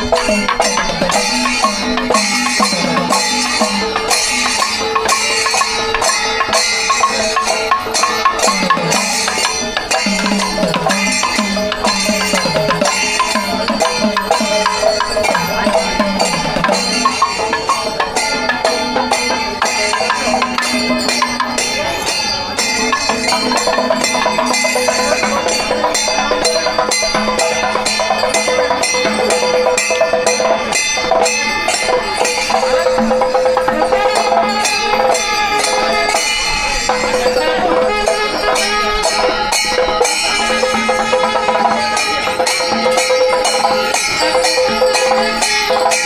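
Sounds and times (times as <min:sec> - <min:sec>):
cymbals: 0:00.0 - 0:46.0
fast drumming: 0:00.0 - 0:46.0
wind instrument long notes: 0:00.0 - 0:46.0.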